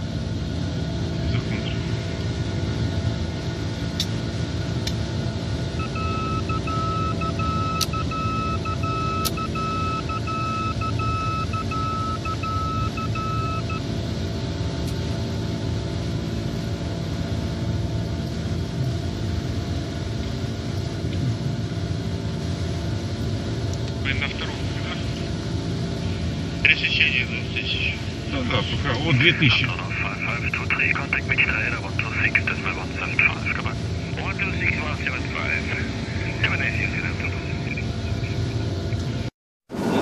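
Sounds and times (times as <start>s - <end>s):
aircraft cockpit engine rumble: 0.0s - 40.0s
electronic beeping tone: 5.8s - 13.8s.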